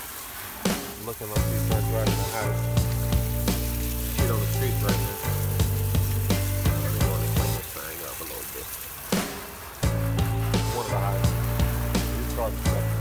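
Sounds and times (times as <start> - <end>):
hose nozzle spraying water: 0.0 - 13.0
music with bass and beat: 1.4 - 7.6, 9.2 - 13.0.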